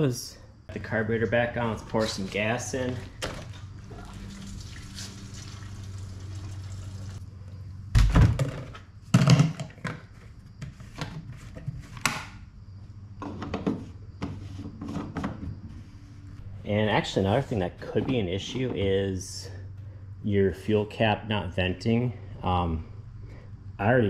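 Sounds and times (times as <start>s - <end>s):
gasoline pouring into plastic tank: 3.2s - 7.2s
loud thunks: 7.9s - 9.6s.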